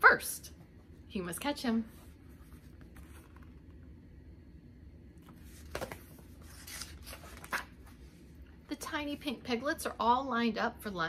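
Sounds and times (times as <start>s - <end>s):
low room hum: 0.0s - 11.0s
book pages turning: 1.9s - 3.8s, 5.2s - 8.2s
paper swishes: 5.2s - 8.2s.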